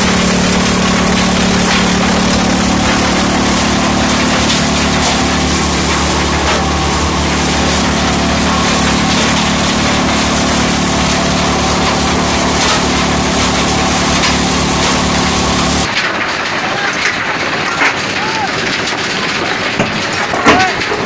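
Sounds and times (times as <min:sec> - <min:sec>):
low motor hum: 0:00.0 - 0:16.0.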